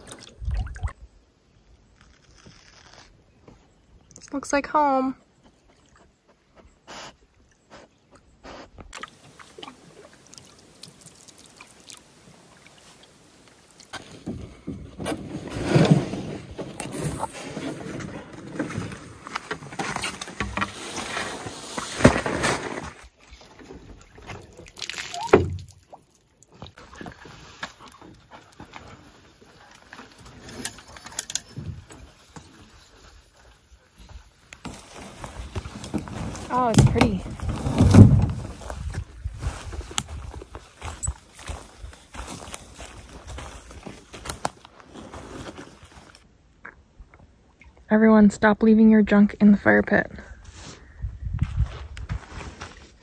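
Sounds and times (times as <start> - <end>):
water sloshing: 8.9 - 14.6, 22.8 - 31.9.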